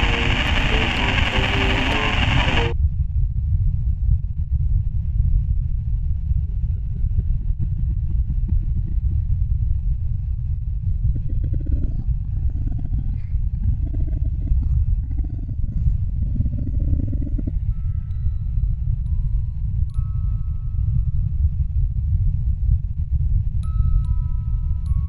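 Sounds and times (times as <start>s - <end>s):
rapid fluttering rattle: 0.0s - 2.7s
swooping tones: 0.0s - 2.7s
loud steady low rumble: 0.0s - 25.0s.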